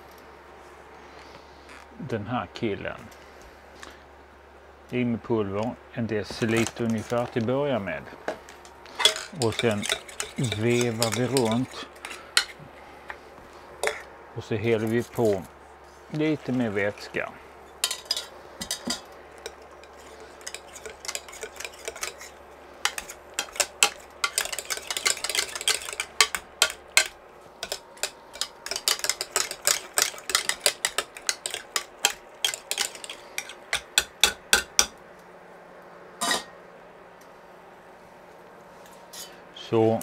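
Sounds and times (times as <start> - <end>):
potato masher clinking on pan: 9.0 - 12.5, 17.8 - 34.9.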